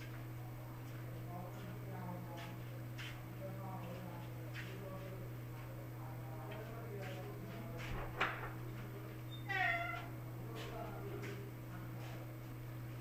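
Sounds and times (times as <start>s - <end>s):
low electrical hum: 0.0s - 13.0s
cat meowing: 9.4s - 10.1s.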